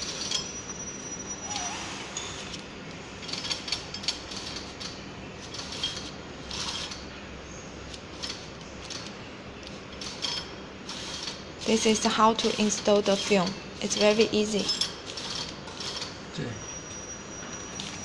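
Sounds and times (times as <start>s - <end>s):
small metal parts clicking: 3.2s - 7.0s.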